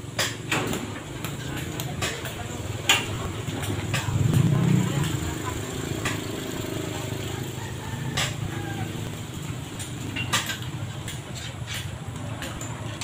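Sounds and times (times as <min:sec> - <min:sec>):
metallic clicks and clanks: 0:00.1 - 0:05.2, 0:09.5 - 0:13.0.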